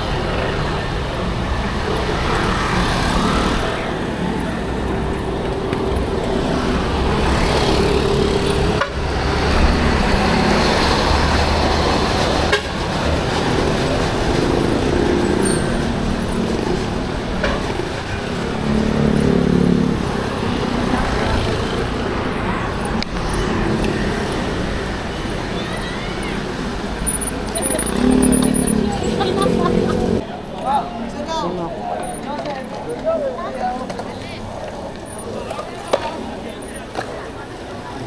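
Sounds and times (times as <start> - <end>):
motorcycle and car engines passing: 0.0 - 30.4
steady low traffic rumble: 0.0 - 38.0.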